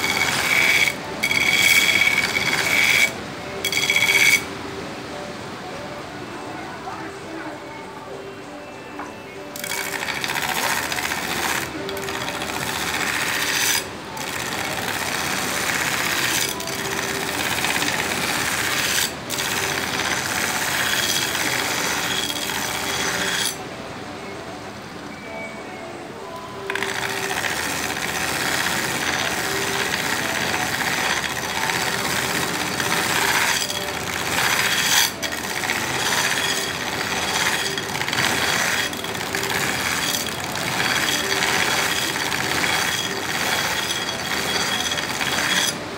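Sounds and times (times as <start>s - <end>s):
belt grinder running: 0.0s - 4.5s, 9.6s - 23.6s, 26.7s - 45.8s
knife grinding on belt grinder: 0.0s - 4.5s, 9.5s - 23.6s, 26.6s - 45.9s.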